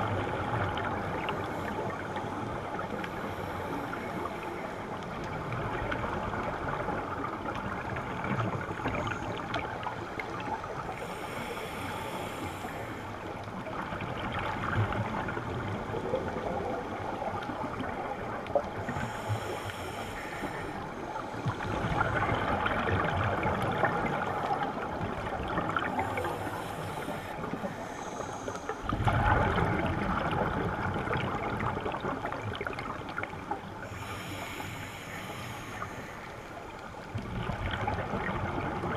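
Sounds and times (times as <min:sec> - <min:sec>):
bubbles rushing and gurgling: 0:00.0 - 0:11.2, 0:12.6 - 0:28.0, 0:28.8 - 0:34.1, 0:36.9 - 0:38.9.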